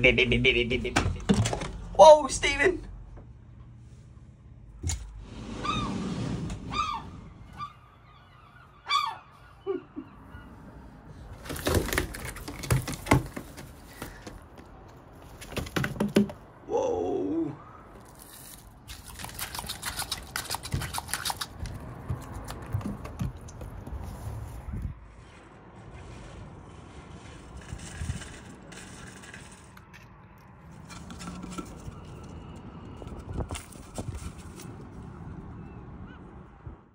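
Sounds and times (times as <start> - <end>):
gull squawking: 6.7 - 10.8
bill tapping on windowsill: 15.5 - 16.4.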